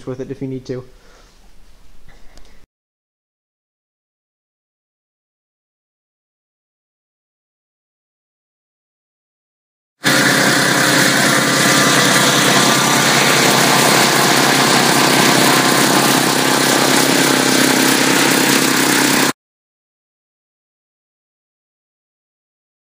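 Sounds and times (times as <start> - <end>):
generator engine running: 10.0 - 19.4.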